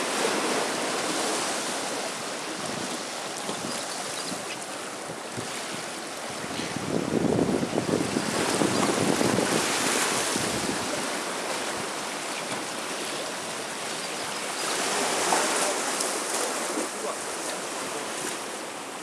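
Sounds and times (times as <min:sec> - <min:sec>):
sea water lapping: 0:00.0 - 0:19.0
wind buffeting microphone: 0:02.5 - 0:11.2.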